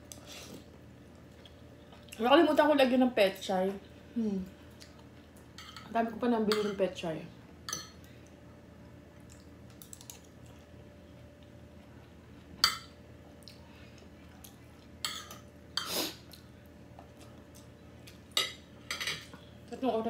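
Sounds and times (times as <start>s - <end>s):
faint hum: 0.0s - 20.0s
cutlery clinking on a plate: 18.4s - 19.3s.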